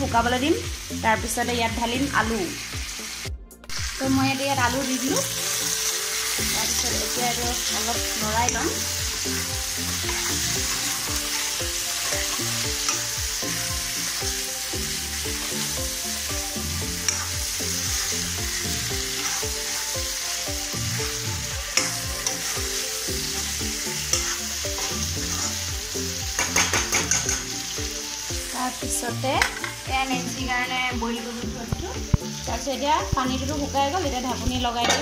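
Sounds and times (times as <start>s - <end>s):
food sizzling in oil: 0.0s - 35.0s
metal spatula scraping pan: 9.9s - 13.2s, 17.0s - 17.4s, 19.0s - 19.8s, 23.3s - 25.7s, 26.3s - 27.5s.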